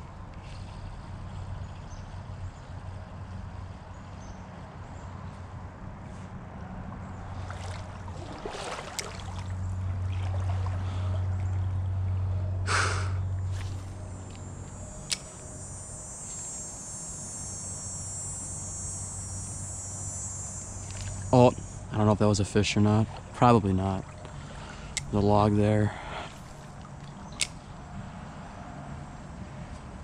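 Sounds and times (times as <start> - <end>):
brook trickling: 7.2 - 12.0, 20.7 - 27.6
fishing reel whirring: 13.4 - 22.4
sharp click: 15.0 - 15.5, 27.3 - 27.6.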